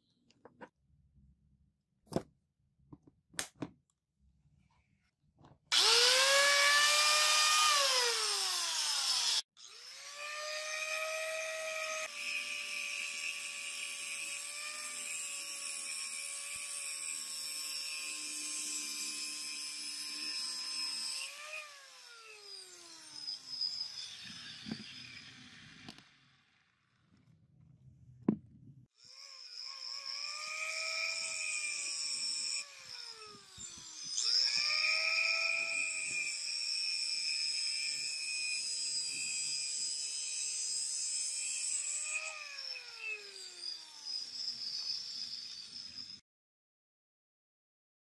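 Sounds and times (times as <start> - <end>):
angle grinder whine: 5.7 - 26.5, 29.0 - 40.6, 41.2 - 46.2
grinder cutting steel pipe: 5.7 - 26.7, 29.0 - 46.2.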